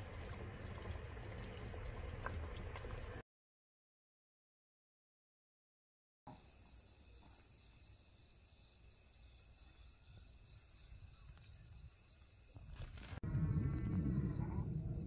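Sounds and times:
crickets trilling: 0:06.3 - 0:15.0
insect chirping in even pulses: 0:06.3 - 0:15.0.

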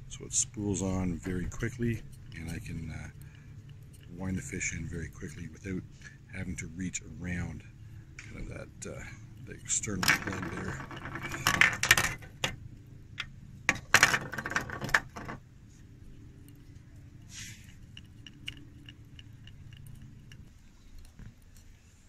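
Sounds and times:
fishing gear clattering: 0:00.7 - 0:06.2, 0:08.2 - 0:12.6, 0:13.7 - 0:15.4
fishing line winding ticks: 0:00.8 - 0:06.9, 0:16.4 - 0:21.8.

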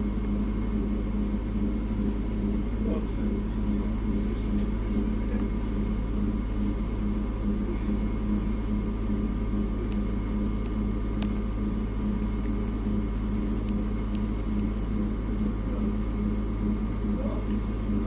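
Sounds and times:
faint whines: 0:00.0 - 0:18.0
train interior low hum: 0:00.0 - 0:18.0.

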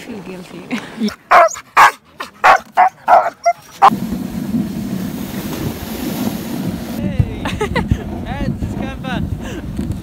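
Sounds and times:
dog barking: 0:01.3 - 0:03.9
dog sled rushing over snow: 0:03.6 - 0:10.0
wind on microphone: 0:03.9 - 0:10.0.

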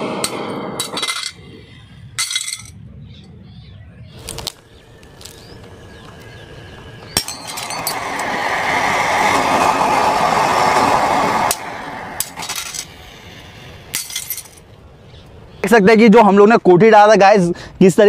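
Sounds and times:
firecracker rushing hiss: 0:04.2 - 0:14.6.

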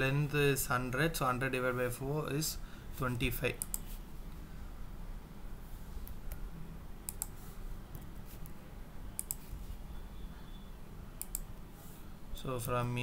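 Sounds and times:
low steady hum: 0:00.0 - 0:13.0
mouse and keyboard clicks: 0:07.1 - 0:08.6, 0:09.2 - 0:09.5, 0:11.2 - 0:11.5.

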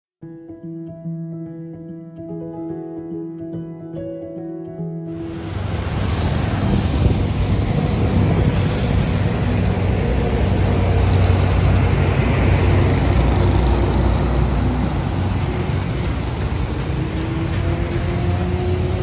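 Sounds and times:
road traffic passing: 0:05.1 - 0:19.0
vehicle passing with whine: 0:05.1 - 0:19.0.

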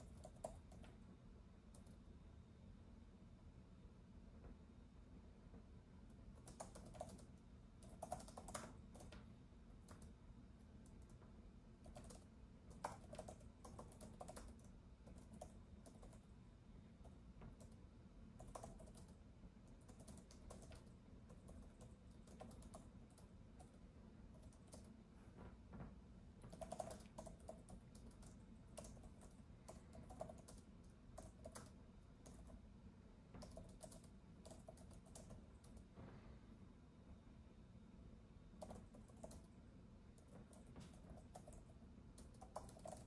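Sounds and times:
typing on a keyboard: 0:00.0 - 0:01.0, 0:01.6 - 0:02.0, 0:06.1 - 0:16.3, 0:17.0 - 0:25.0, 0:26.4 - 0:32.6, 0:33.3 - 0:35.9, 0:38.6 - 0:43.0
low room hum: 0:00.0 - 0:43.0.

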